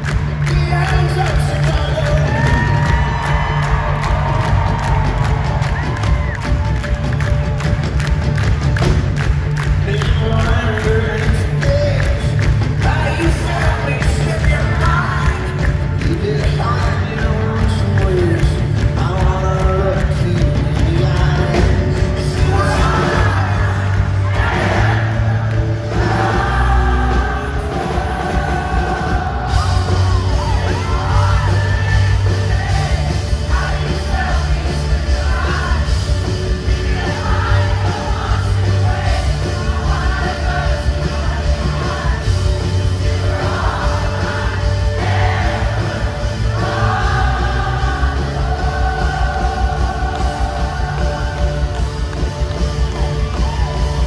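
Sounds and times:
crowd yelling: 0:00.0 - 0:08.6, 0:22.4 - 0:54.0
live rock band playing: 0:00.0 - 0:54.0
person singing: 0:09.8 - 0:24.9.

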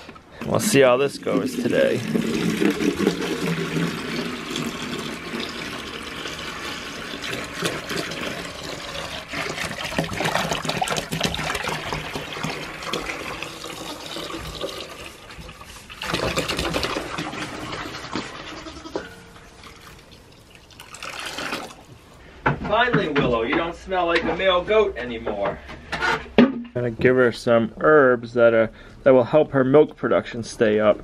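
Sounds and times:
water pouring into plastic bucket: 0:00.4 - 0:18.6, 0:19.6 - 0:21.9.

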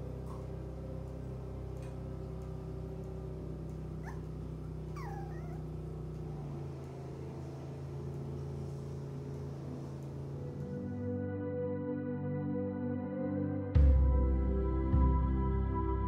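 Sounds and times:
steady low drone: 0:00.0 - 0:16.0
dog whimpering: 0:04.0 - 0:05.8.

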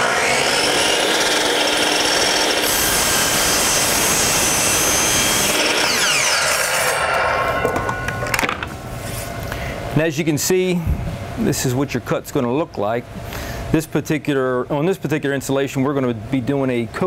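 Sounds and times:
miter saw cutting wood: 0:00.0 - 0:07.8.

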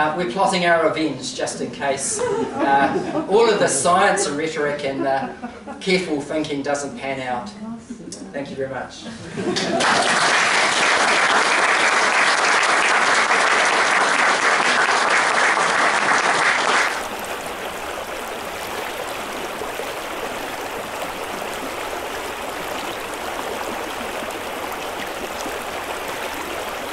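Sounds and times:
audience applauding: 0:09.6 - 0:26.9
shallow river over stones: 0:17.0 - 0:26.9.

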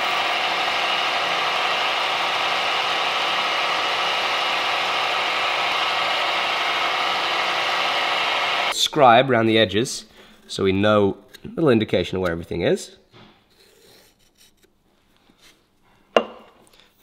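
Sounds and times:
drill press drilling steel: 0:00.0 - 0:08.7.

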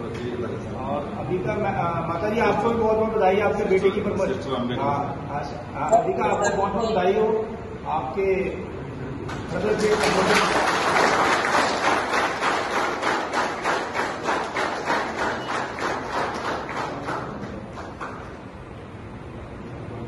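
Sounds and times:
people clapping in unison: 0:09.2 - 0:18.6.

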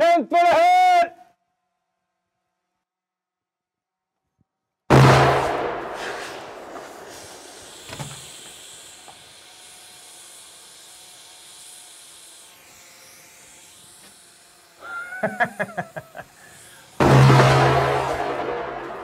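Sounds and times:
blast echo: 0:04.9 - 0:07.1, 0:17.0 - 0:19.0
faint steady hiss: 0:05.7 - 0:17.0.

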